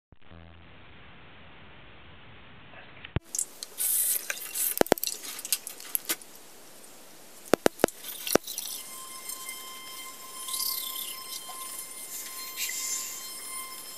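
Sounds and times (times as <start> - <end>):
recording hiss: 2.9 - 13.9
brief hiss: 3.2 - 6.2, 11.6 - 13.9
toothbrushes and tubes clicking: 3.3 - 6.2, 7.5 - 9.4.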